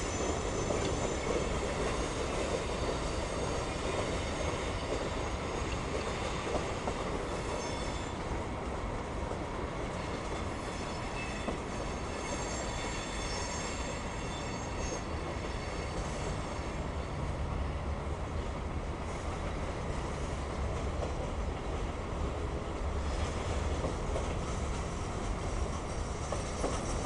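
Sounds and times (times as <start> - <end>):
high-pitched wheel squeal: 0.0 - 5.8, 7.3 - 8.3, 10.4 - 17.3
train wheels rumbling on rail: 0.0 - 27.0.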